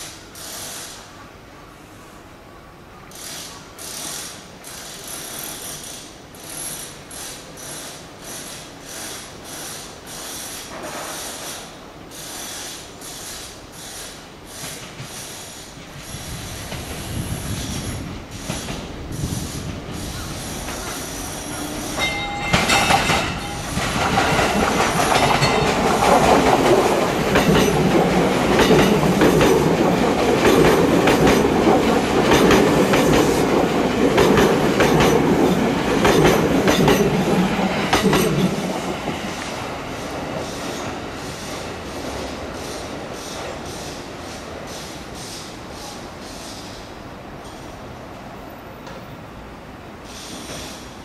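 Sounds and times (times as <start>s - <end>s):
electric train passing: 0.0s - 51.0s
wheels clacking over rail joints: 3.1s - 44.8s.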